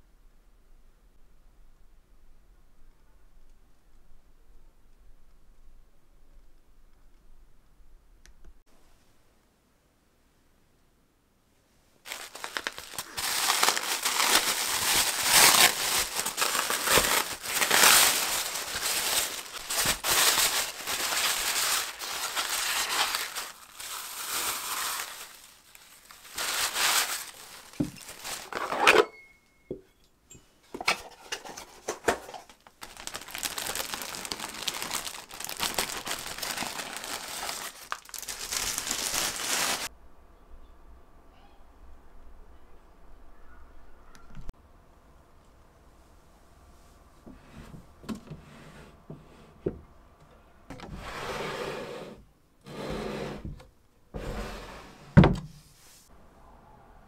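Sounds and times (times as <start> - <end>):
wrapping paper crinkling and tearing: 12.0 - 28.9, 31.4 - 39.9
styrofoam clicks and squeaks: 12.1 - 28.8, 32.8 - 39.9.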